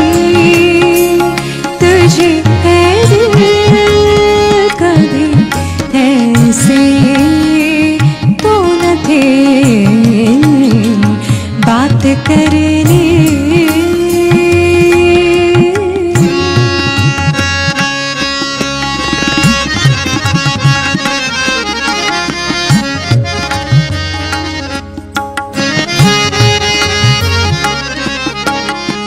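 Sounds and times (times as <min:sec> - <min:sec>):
electronic keyboard chords: 0:00.0 - 0:29.0
tabla playing: 0:00.0 - 0:29.0
wavering gliding melody: 0:16.1 - 0:29.0.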